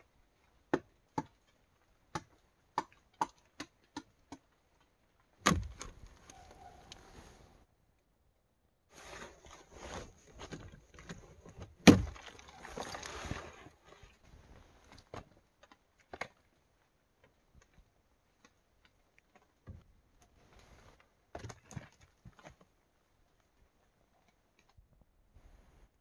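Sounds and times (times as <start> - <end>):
light knocks and thuds of wood: 0.6 - 6.3, 10.0 - 16.5
rotten wood scraping and crumbling: 4.4 - 7.1, 9.0 - 24.8.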